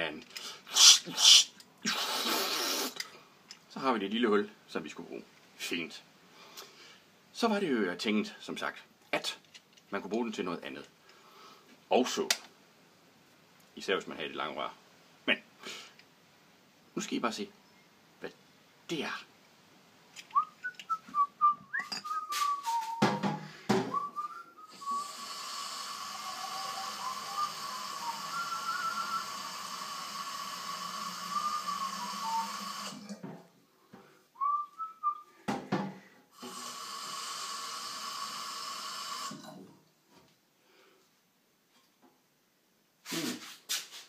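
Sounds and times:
short whistled notes: 20.3 - 23.2
tap water rushing into bottle: 29.0 - 33.3.

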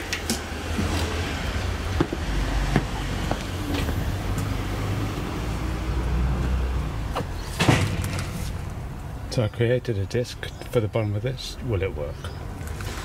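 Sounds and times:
footsteps on paving slabs: 1.9 - 4.6.

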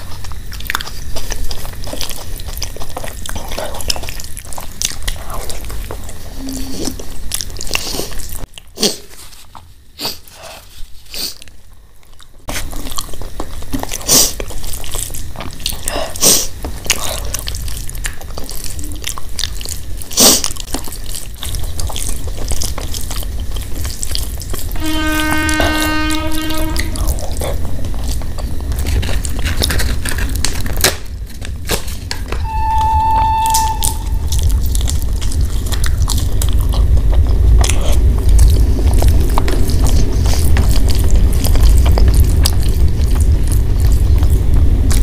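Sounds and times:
steady humming tone: 21.3 - 45.0.

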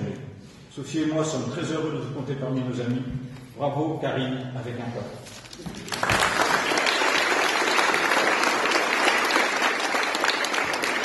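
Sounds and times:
crowd applauding: 5.7 - 11.0.

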